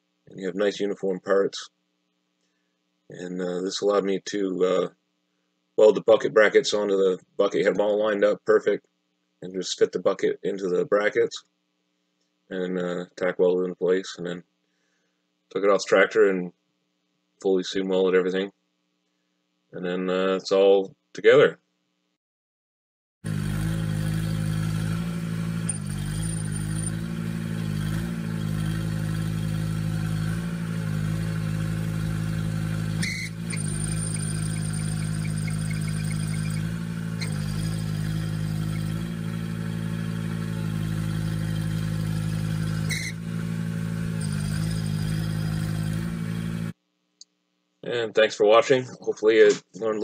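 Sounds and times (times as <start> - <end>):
garden tractor engine running: 23.3 - 46.7
click: 47.2 - 47.4.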